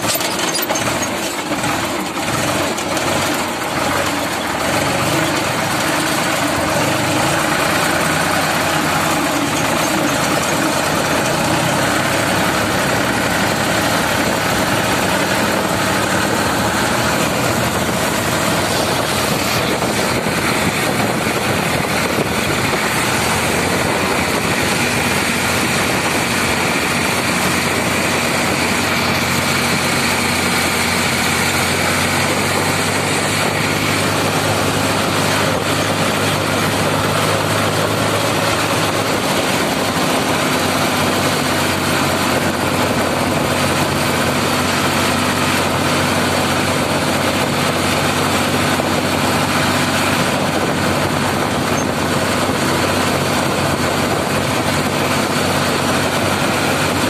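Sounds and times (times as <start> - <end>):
tractor engine running: 0.0 - 57.0
wind and road noise: 0.0 - 57.0.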